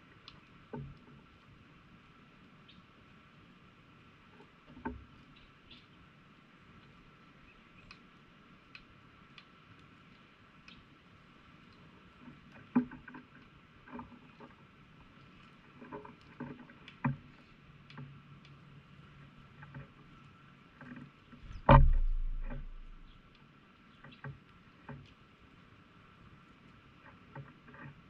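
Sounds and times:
loud thump with low hum: 21.4 - 23.2.

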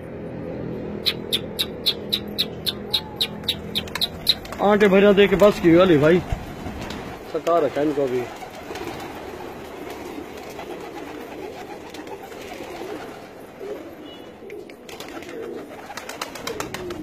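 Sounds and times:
pigeons cooing: 1.0 - 4.7, 8.2 - 17.0
wings flapping: 3.3 - 17.0.

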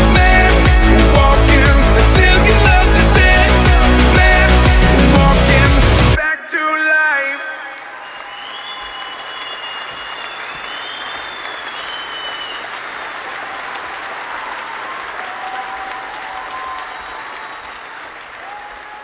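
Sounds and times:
crowd applauding and cheering: 7.1 - 19.0.

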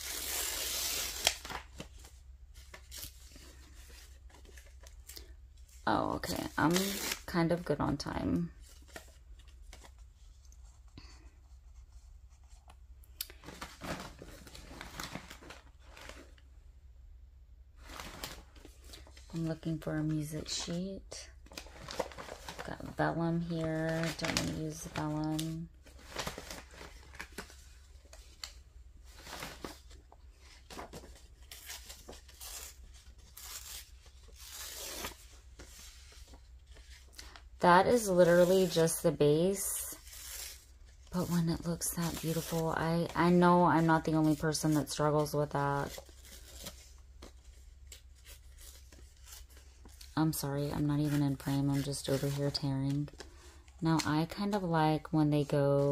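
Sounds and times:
paper rustling: 13.3 - 16.4, 21.4 - 54.6.

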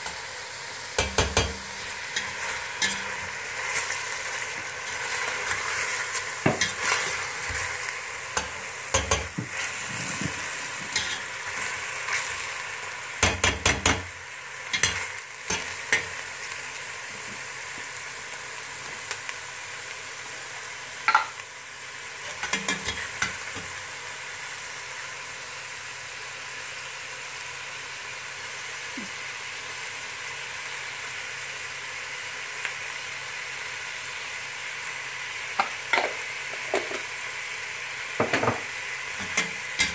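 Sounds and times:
chicken sizzling in oil: 0.0 - 39.9
metal spatula scraping a pot: 1.1 - 3.9.

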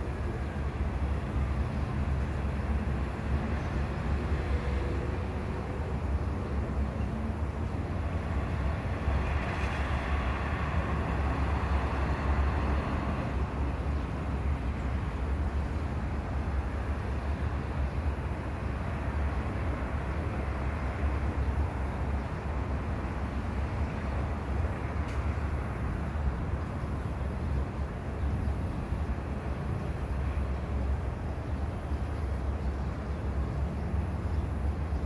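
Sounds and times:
traffic rumble: 0.0 - 35.0.

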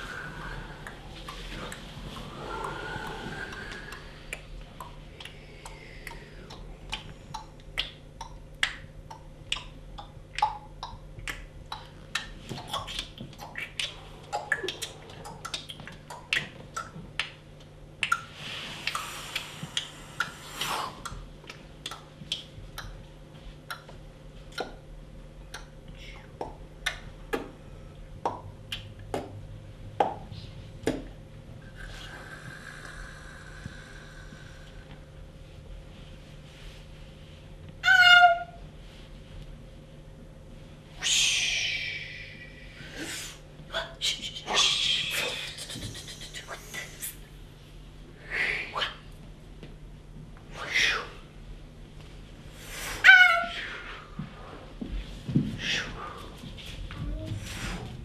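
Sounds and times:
breathy rushing hiss: 0.0 - 4.6, 18.4 - 21.0, 31.7 - 34.9, 40.9 - 43.5, 52.4 - 54.8
body percussion clicks and snaps: 3.5 - 23.1, 23.7 - 24.8.

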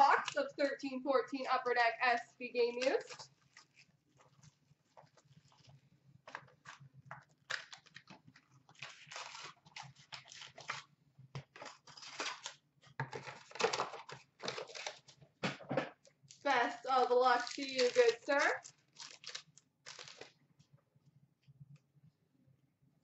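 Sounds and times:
packaging rustling and tearing: 2.8 - 15.3, 16.3 - 20.4.

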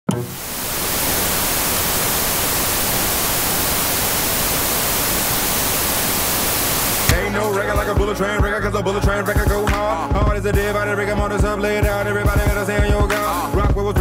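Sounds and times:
tv static hiss: 0.1 - 7.2.

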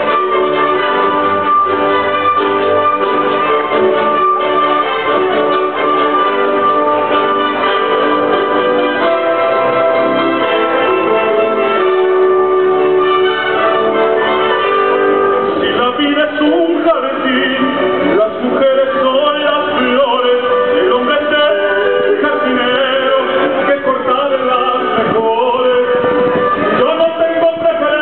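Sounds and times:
symphony orchestra playing: 0.0 - 28.0
man singing tenor: 8.9 - 28.0.

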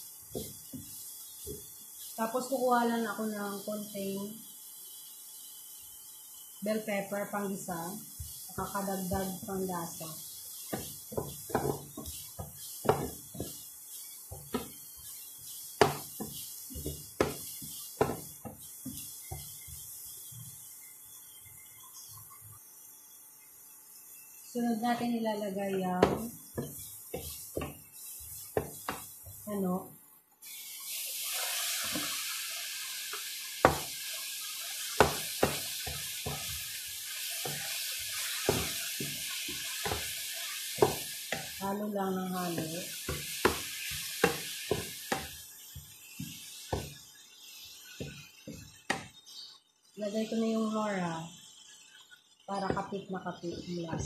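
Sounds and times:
chicken and vegetables sizzling: 0.0 - 54.0
wooden spatula knocking on pot: 0.3 - 1.7, 10.7 - 13.7, 14.3 - 14.9, 15.8 - 19.8, 25.7 - 27.8, 28.5 - 29.4, 33.6 - 34.0, 35.0 - 36.6, 37.4 - 40.2, 40.8 - 41.6, 42.5 - 45.4, 46.2 - 47.0, 52.6 - 52.9, 53.6 - 54.0
spatula scraping steel pot: 10.3 - 20.4.

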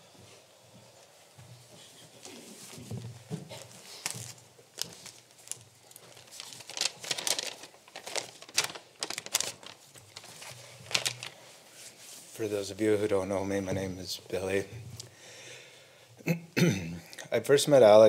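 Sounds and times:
paper rustling and crinkling: 2.2 - 12.4.

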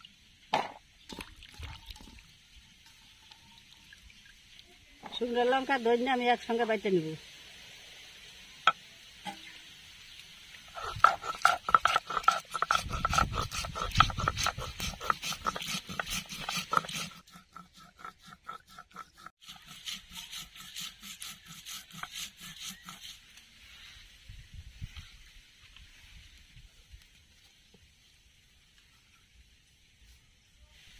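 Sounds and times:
stone roller scraping on stone slab: 10.7 - 23.2.

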